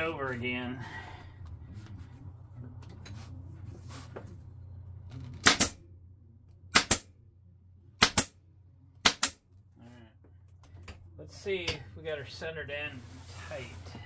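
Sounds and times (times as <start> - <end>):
faint low hum: 0.0 - 14.0
pneumatic stapler firing: 5.4 - 5.8, 6.7 - 7.0, 8.0 - 8.3.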